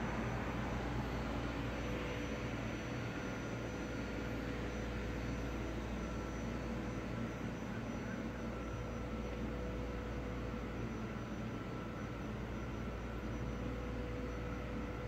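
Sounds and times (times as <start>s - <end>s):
faint constant tone: 0.0s - 15.0s.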